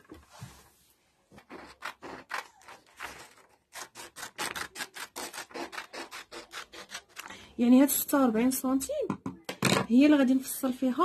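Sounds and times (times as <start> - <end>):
scissors snipping paper: 1.4 - 7.3.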